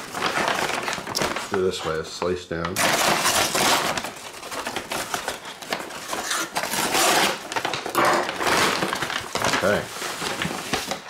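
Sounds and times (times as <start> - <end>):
crinkling paper rustle: 0.0 - 11.0
paper being torn open: 2.8 - 11.0.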